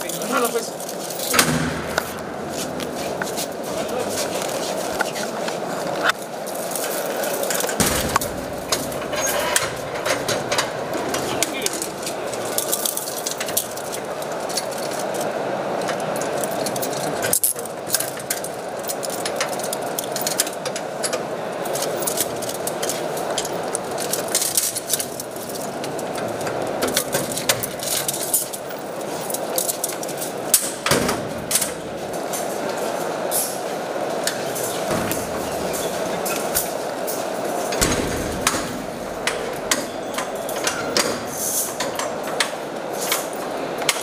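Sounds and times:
handcuffs and chains clinking: 0:00.0 - 0:04.9, 0:06.0 - 0:33.7, 0:34.4 - 0:44.0
loud knocks: 0:01.3 - 0:03.6, 0:07.8 - 0:11.2, 0:37.7 - 0:41.4.

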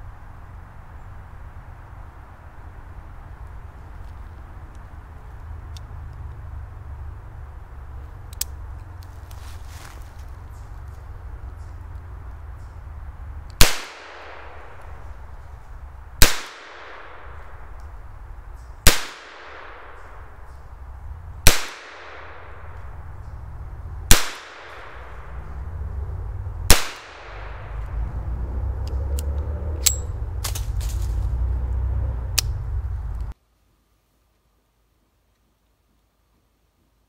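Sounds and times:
light metallic clicks: 0:08.2 - 0:09.1, 0:28.8 - 0:31.0
revolver gunshots with echo: 0:13.6 - 0:14.8, 0:16.2 - 0:17.7, 0:18.8 - 0:20.4, 0:21.4 - 0:23.0, 0:24.1 - 0:25.5, 0:26.7 - 0:27.7
low rumble: 0:19.4 - 0:33.4.

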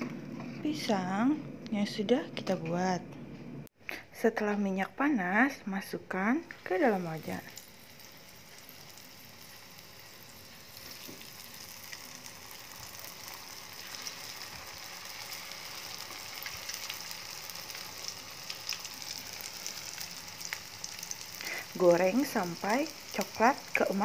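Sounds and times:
food sizzling in oil: 0:06.6 - 0:24.0.

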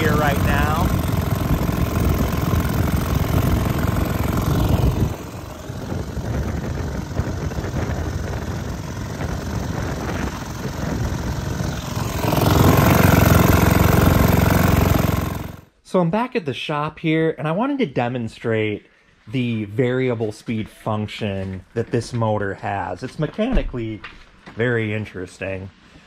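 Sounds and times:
outboard motor running: 0:00.0 - 0:15.7.

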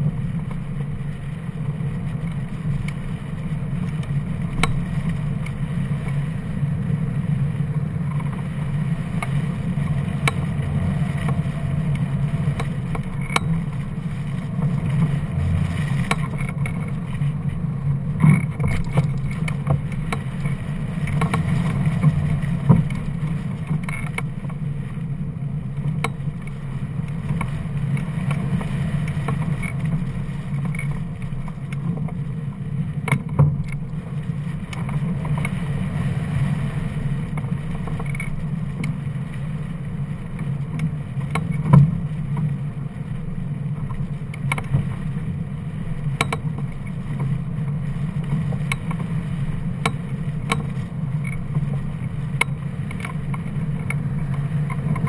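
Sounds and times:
rush of airflow: 0:00.0 - 0:18.2.

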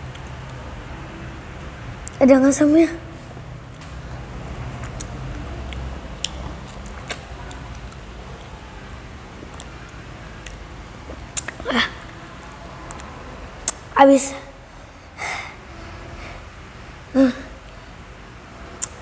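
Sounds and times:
wet mouth clicks and smacks: 0:04.8 - 0:08.0, 0:10.4 - 0:11.6, 0:18.8 - 0:19.0.

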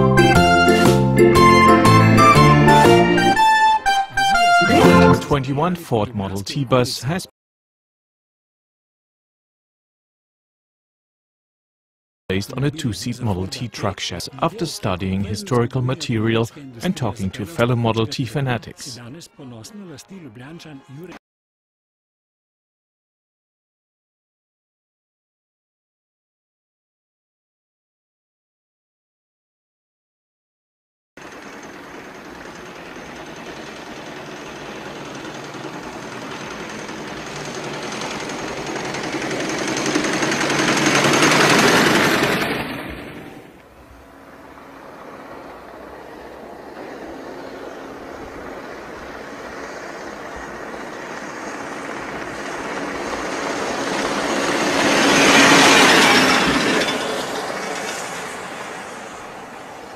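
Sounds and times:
old bus engine passing: 0:00.0 - 0:05.4, 0:31.2 - 0:59.9.

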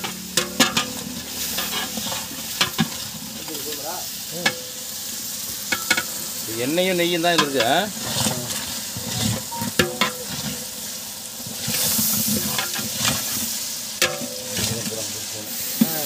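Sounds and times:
onions sizzling in oil: 0:00.0 - 0:16.0
spoon knocking against pot: 0:09.6 - 0:10.2.

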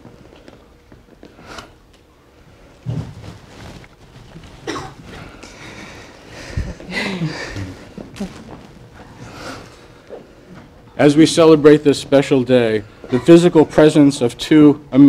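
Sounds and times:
person coughing: 0:04.6 - 0:05.4.

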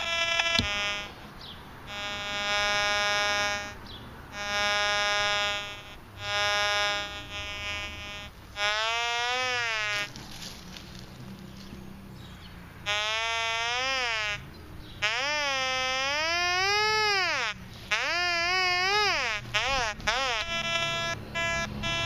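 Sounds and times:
metal detector beep: 0:00.0 - 0:01.2, 0:01.9 - 0:08.3, 0:15.1 - 0:22.0
metal detector rising and falling tone: 0:00.0 - 0:01.3, 0:01.9 - 0:10.2, 0:15.0 - 0:22.0
metal detector buzzy tones: 0:00.0 - 0:10.6, 0:12.8 - 0:14.4, 0:15.0 - 0:22.0.

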